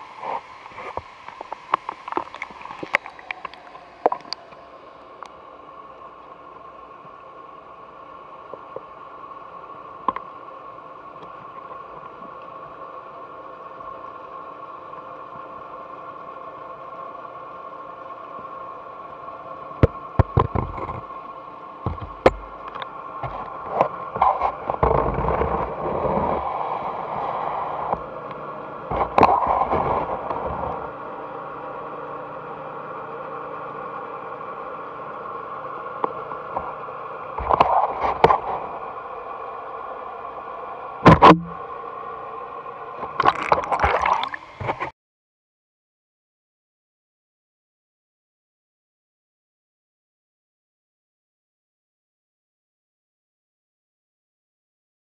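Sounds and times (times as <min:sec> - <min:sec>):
underwater tank hum: 0:00.0 - 0:44.9
camera knocking and scraping: 0:19.8 - 0:21.1, 0:21.9 - 0:26.4, 0:41.1 - 0:41.6.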